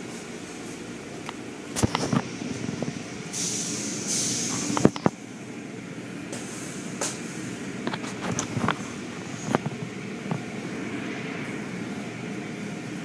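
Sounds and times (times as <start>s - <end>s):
car wash machinery rumbling: 0.0s - 13.0s
hiss: 3.3s - 4.9s, 6.3s - 7.6s.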